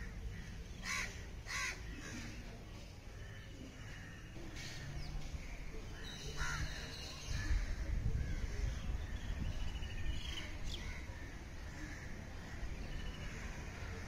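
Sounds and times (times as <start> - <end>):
crows cawing: 0.1 - 2.2
birds calling: 3.1 - 14.0.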